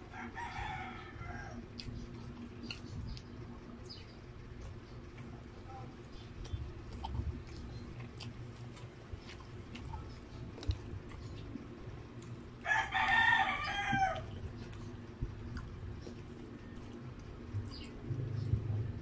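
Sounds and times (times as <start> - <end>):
rooster crowing: 0.0 - 1.6, 12.6 - 14.3
faint eating clicks: 0.0 - 19.0.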